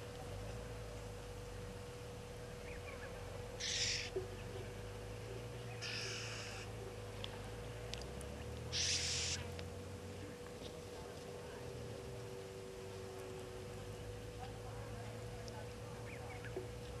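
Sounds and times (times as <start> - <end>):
faint steady hum: 0.0 - 17.0
raspy hissing animal calls: 3.6 - 4.1, 5.8 - 6.6, 8.7 - 9.5.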